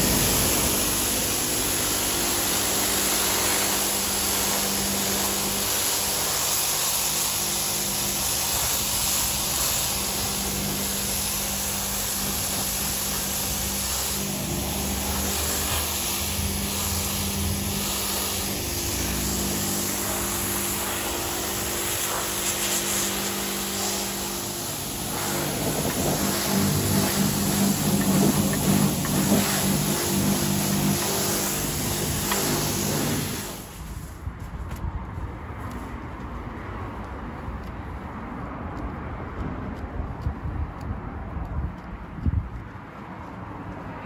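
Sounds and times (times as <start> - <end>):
pressure washer pump humming: 0.0 - 34.1
high-pressure water jet hissing: 0.0 - 34.2.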